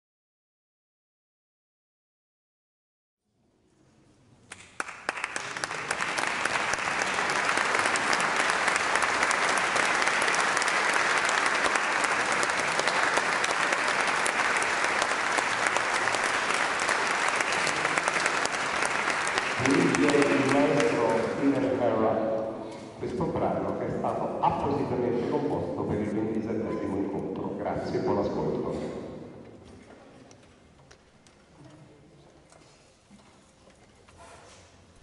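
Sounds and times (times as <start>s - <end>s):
audience applauding: 4.5s - 22.0s.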